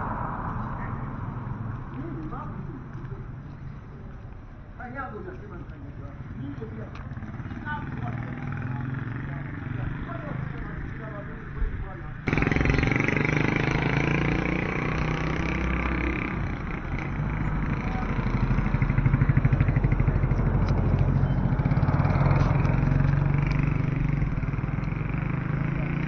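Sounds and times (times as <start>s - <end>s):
wind and road rush: 0.0s - 26.0s
small motorcycle engine running: 12.2s - 26.0s.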